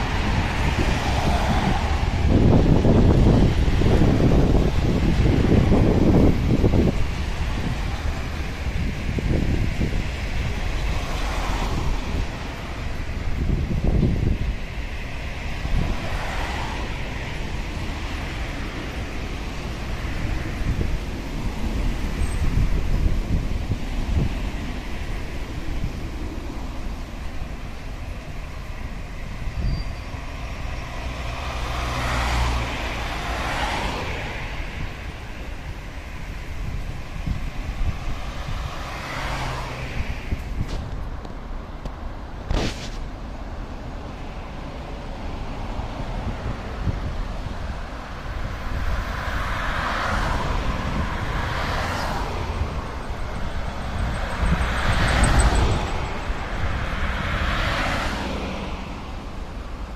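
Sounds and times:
cars passing on wet road: 0.0s - 59.9s
car driving past: 30.8s - 34.7s, 38.2s - 40.4s.

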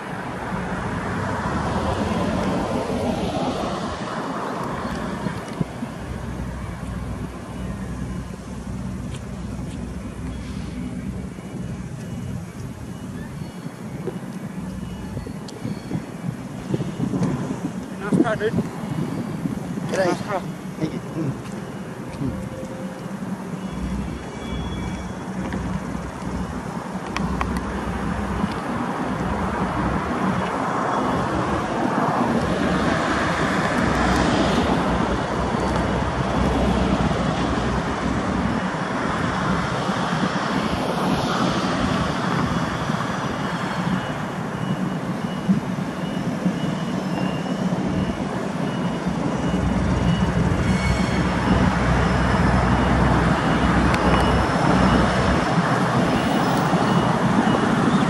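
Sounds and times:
diesel locomotive engine running: 0.0s - 58.0s
road traffic noise: 0.0s - 58.0s
faint high beeping: 6.3s - 17.0s, 20.0s - 26.6s.

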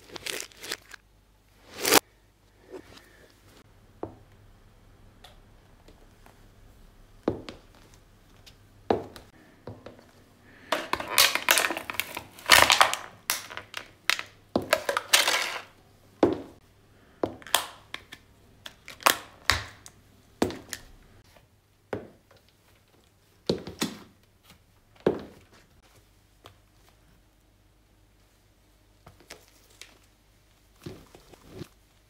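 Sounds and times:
plastic crackling and crunching: 0.0s - 1.0s, 10.6s - 15.8s
plastic cases cracking under heel: 10.7s - 15.7s.

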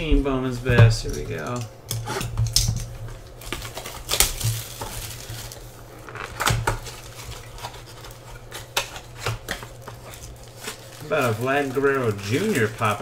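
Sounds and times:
wrapper crinkling and rustling: 2.5s - 13.0s
wrapper ripping: 3.2s - 13.0s.

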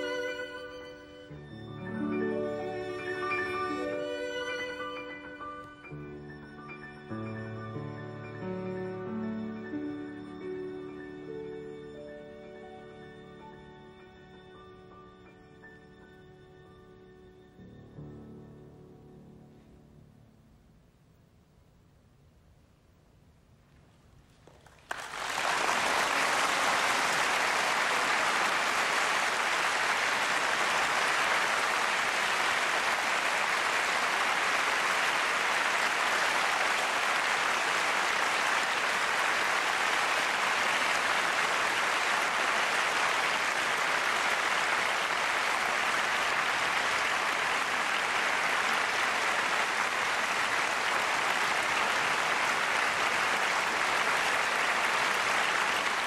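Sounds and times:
audience applauding: 0.0s - 0.6s, 24.4s - 56.0s.

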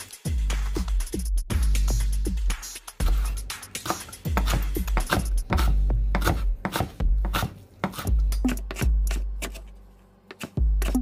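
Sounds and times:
background music with deep bass: 0.0s - 7.3s
knife chopping on wooden board: 3.0s - 9.7s, 10.3s - 11.0s.

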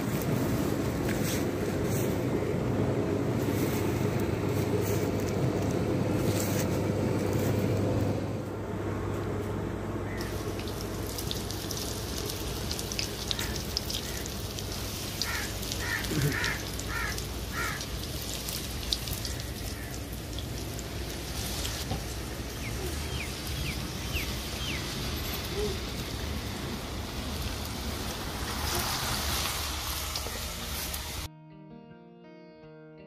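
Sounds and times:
water running in a channel: 10.0s - 31.2s
bird calling: 13.0s - 14.5s, 15.1s - 18.0s, 22.2s - 26.2s.

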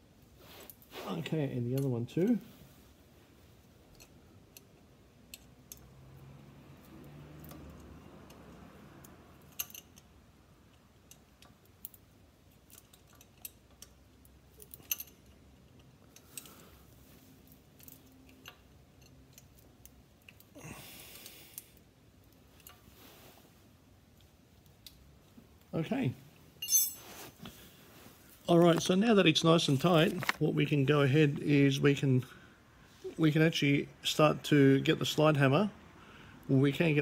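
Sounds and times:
short rustle: 26.6s - 29.0s.

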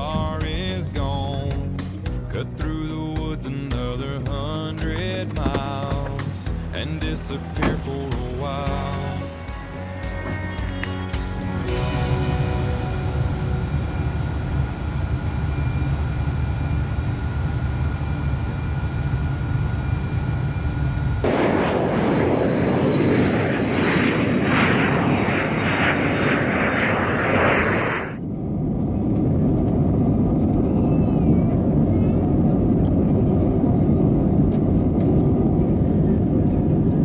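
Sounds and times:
jet engines taxiing rumble and whine: 0.0s - 37.0s
jet roar on runway: 4.8s - 37.0s
engine drone inside aircraft cabin: 10.3s - 37.0s.

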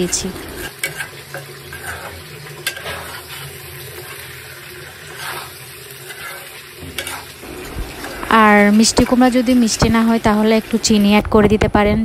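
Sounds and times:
metal spoon scraping pan: 0.0s - 8.3s
pumpkin sizzling in pan: 0.0s - 11.8s.

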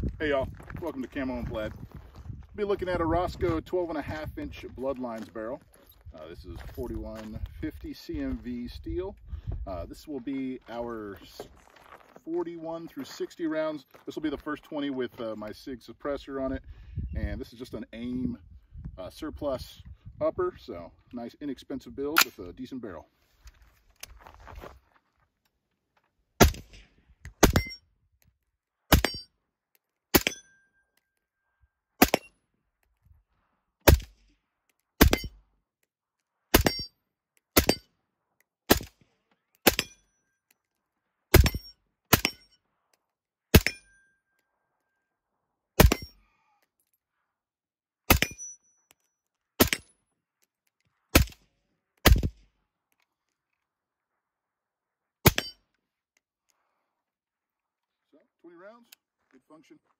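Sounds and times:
suppressed rifle shots: 45.8s - 46.1s.

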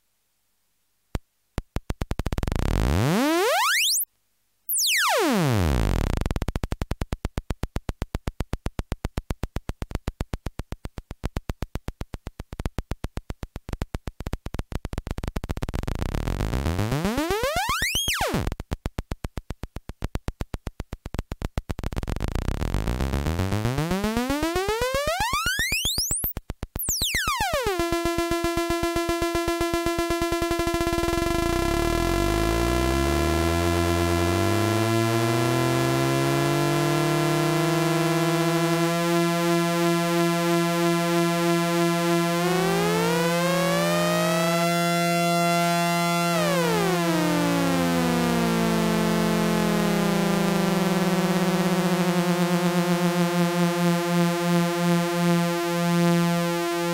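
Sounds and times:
synthesizer oscillator sweeping: 2.3s - 4.0s, 4.7s - 6.2s, 15.7s - 18.5s, 21.9s - 56.9s
lower synth tone sliding down: 2.5s - 4.0s, 4.7s - 6.2s, 15.9s - 18.5s, 22.1s - 28.3s, 29.6s - 56.9s.

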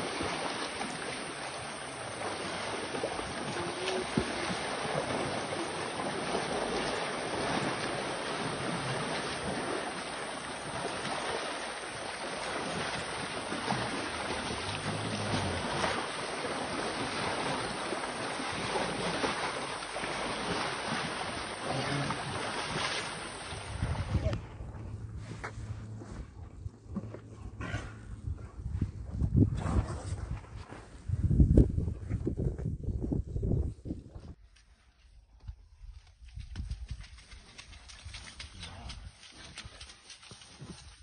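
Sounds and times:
river water rushing and splashing: 0.0s - 24.3s
wind buffeting microphone: 12.1s - 34.4s.

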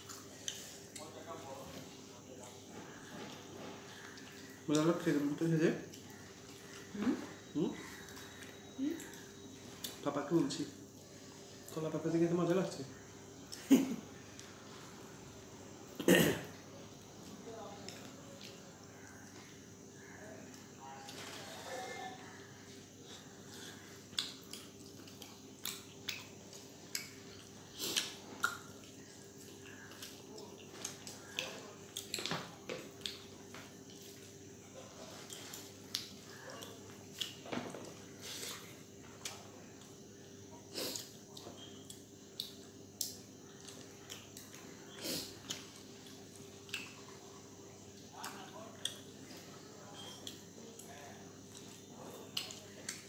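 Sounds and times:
faint steady hum: 0.0s - 53.0s
wet chewing and squishing: 23.2s - 40.1s, 40.9s - 53.0s.

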